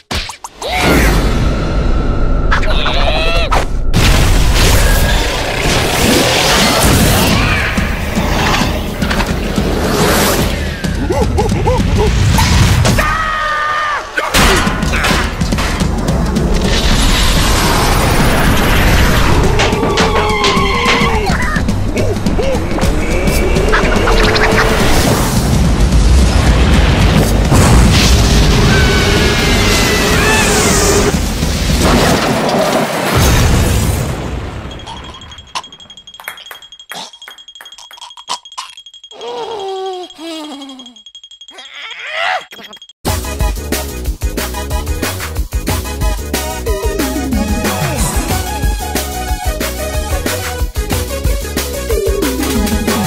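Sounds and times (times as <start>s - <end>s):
cartoon explosion blast: 3.8s - 7.6s, 26.0s - 35.3s
character screaming: 28.7s - 31.1s, 41.6s - 42.5s
debris clinking: 34.4s - 39.2s
thin high ringing tone: 34.6s - 43.0s.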